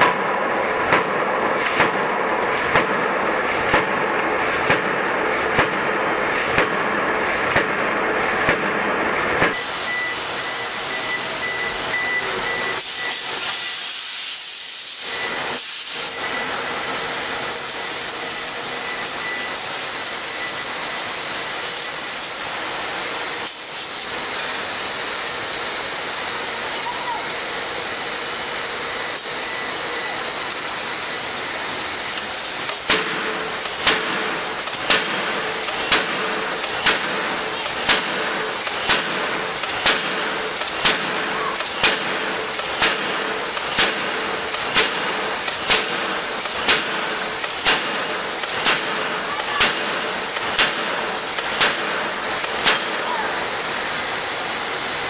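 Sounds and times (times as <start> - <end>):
forging hammer striking metal: 0.0 - 11.2, 32.2 - 53.0
hiss of shop noise: 0.4 - 55.0.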